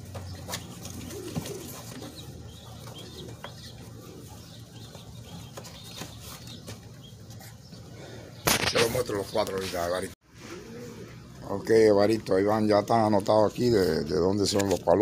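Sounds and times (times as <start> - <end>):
pigeons cooing: 0.0 - 9.7, 10.3 - 11.6.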